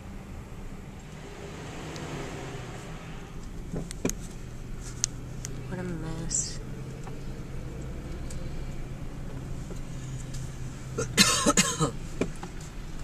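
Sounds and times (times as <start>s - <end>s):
car driving hum: 0.0s - 13.0s
person coughing: 11.0s - 12.0s.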